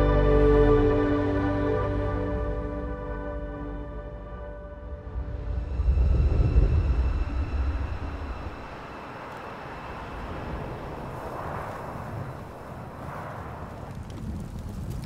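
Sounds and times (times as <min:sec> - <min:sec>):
deep low rumble: 0:00.0 - 0:15.0
airy wind-like noise: 0:04.9 - 0:15.0.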